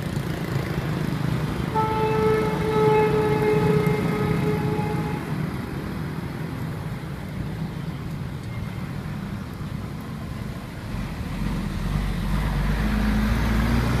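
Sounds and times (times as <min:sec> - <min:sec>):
street traffic: 0:00.0 - 0:14.0
low engine rumble: 0:01.4 - 0:14.0.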